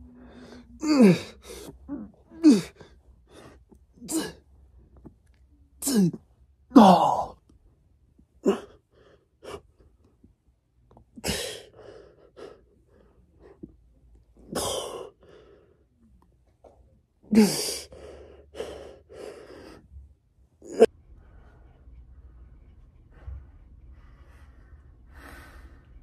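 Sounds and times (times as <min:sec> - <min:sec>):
man grunting: 0:00.8 - 0:02.8, 0:05.8 - 0:07.4.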